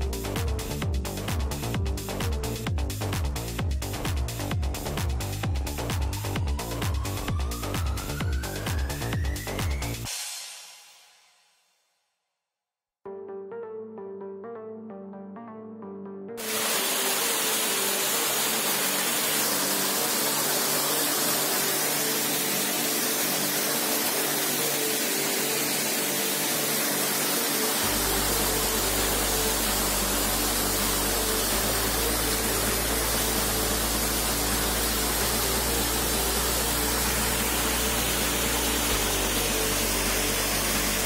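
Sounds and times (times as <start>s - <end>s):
sustained background music: 0.0s - 10.6s, 13.1s - 41.0s
waterfall roaring: 16.4s - 41.0s.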